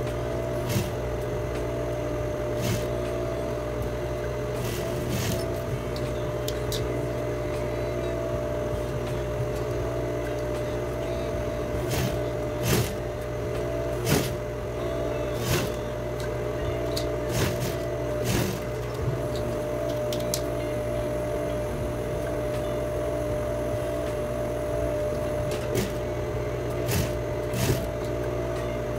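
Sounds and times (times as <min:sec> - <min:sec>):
sewing machine running: 0:00.0 - 0:01.5, 0:02.2 - 0:03.6, 0:04.3 - 0:06.0, 0:11.6 - 0:21.3, 0:24.0 - 0:28.9.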